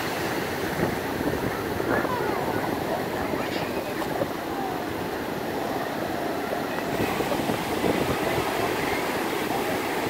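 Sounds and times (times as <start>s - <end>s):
ocean surf breaking: 0.0s - 10.0s.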